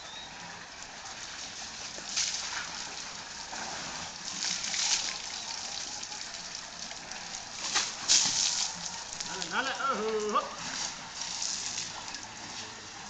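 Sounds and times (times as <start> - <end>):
elephant spraying water: 0.4 - 13.0
water splattering on concrete: 1.9 - 3.0, 4.3 - 12.3.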